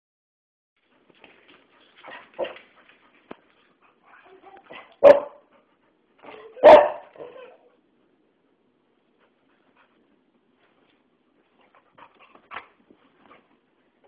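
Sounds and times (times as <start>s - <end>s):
dog barking: 4.7s - 5.4s, 6.3s - 7.7s.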